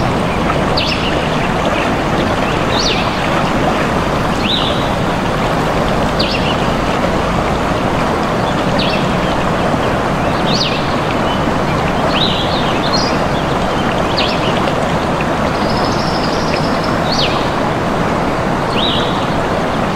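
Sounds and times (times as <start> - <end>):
birds chirping: 0.0 - 17.6
stream rushing: 0.0 - 19.9.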